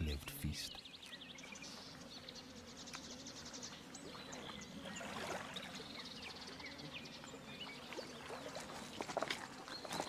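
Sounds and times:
small birds chirping: 0.0 - 10.0
water lapping on shore: 4.0 - 5.9, 7.6 - 10.0.

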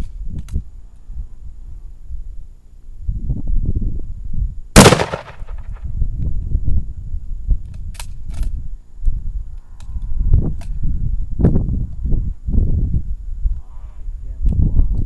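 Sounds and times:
rifle shot: 4.8 - 5.8.

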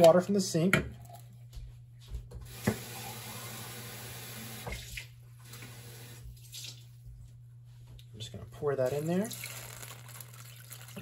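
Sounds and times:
water running from kitchen tap: 2.5 - 6.9, 8.9 - 11.0.

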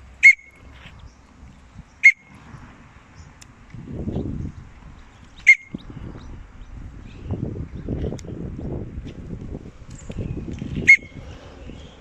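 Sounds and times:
wind rumble on microphone: 0.0 - 12.0
person whistling calls: 0.2 - 0.6, 5.5 - 5.8.

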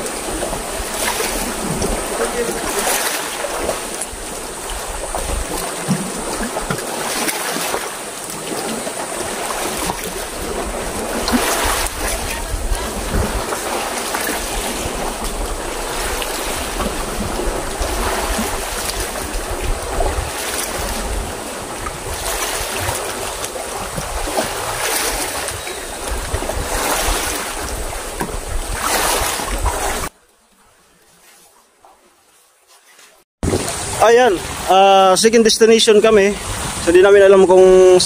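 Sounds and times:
wind buffeting microphone: 0.0 - 7.2, 8.3 - 30.1
water rushing around boat: 0.0 - 38.0.

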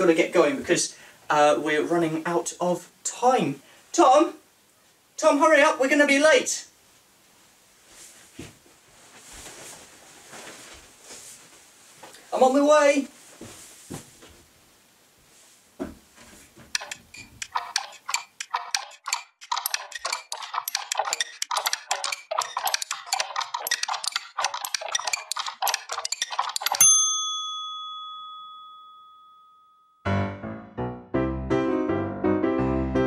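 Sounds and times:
fast clicks and rattles: 16.7 - 26.9
bright bell ding: 26.7 - 30.1
piano music: 30.0 - 33.0.

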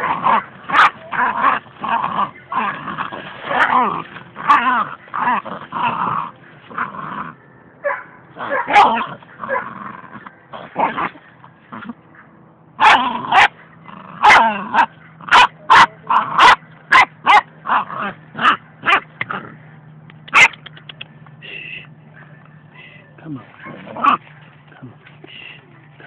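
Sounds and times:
dog barking in sharp yips: 20.3 - 20.9.

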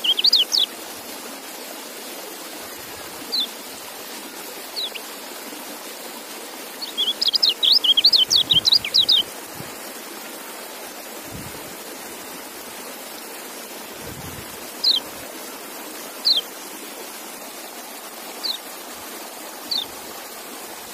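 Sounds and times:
bird chirps sliding downward: 0.0 - 0.7, 6.8 - 9.3, 14.8 - 15.0, 16.2 - 16.5, 19.7 - 19.9
steady rushing hiss: 0.0 - 20.9.

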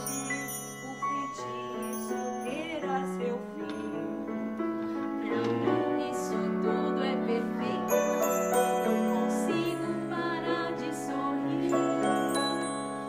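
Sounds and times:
light bell-like tinkles: 0.0 - 4.2, 7.9 - 10.0, 11.7 - 13.0
gentle stage-show music: 0.0 - 13.0.

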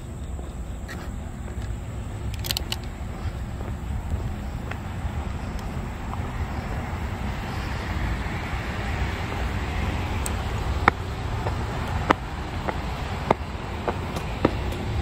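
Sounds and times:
steady low rumble: 0.0 - 15.0
vehicle passing: 0.0 - 15.0
sharp clicks: 1.6 - 3.0.

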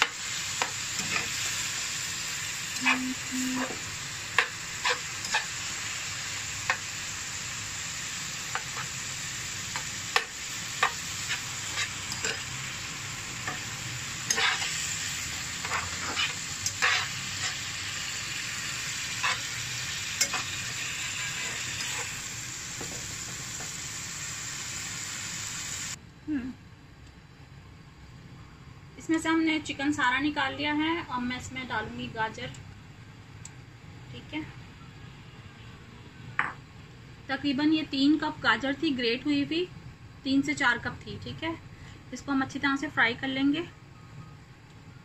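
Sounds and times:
meat sizzling in a frying pan: 0.0 - 26.0
spatula scraping and tapping pan: 14.3 - 14.8, 15.6 - 17.6.

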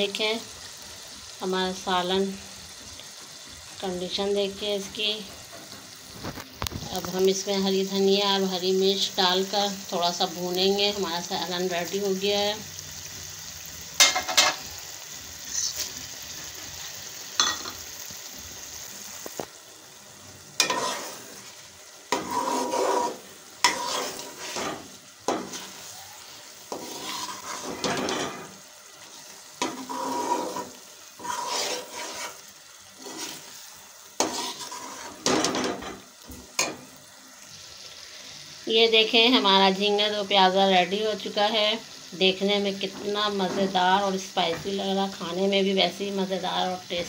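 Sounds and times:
food sizzling in a pan: 0.0 - 47.0
spoon scraping a pan: 14.0 - 14.7, 15.4 - 17.9, 20.6 - 36.9.

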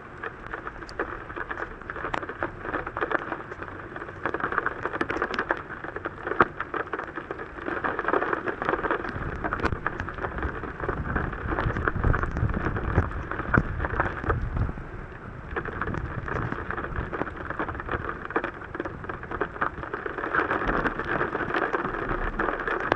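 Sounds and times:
heavy rain on car roof: 0.0 - 22.9.

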